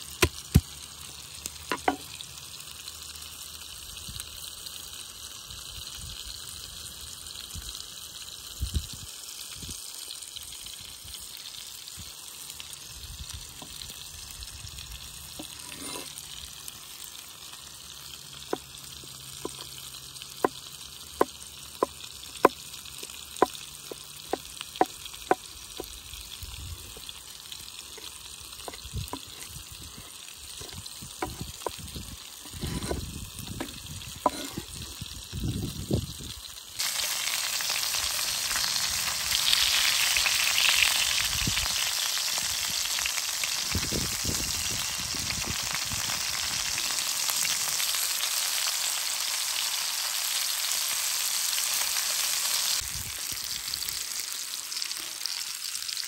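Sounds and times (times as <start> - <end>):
meat sizzling in a pan: 0.0 - 56.0
knife chopping on wooden board: 1.7 - 2.0, 31.2 - 31.5, 32.6 - 33.0, 34.3 - 34.6
knife scraping on board: 15.4 - 16.2, 19.4 - 19.7, 28.0 - 29.6, 30.6 - 31.8, 32.4 - 34.8.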